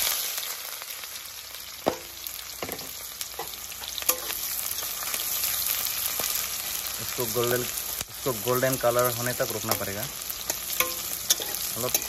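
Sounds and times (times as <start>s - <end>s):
onions sizzling in oil: 0.0s - 12.0s
metal spatula scraping pan: 10.5s - 12.0s.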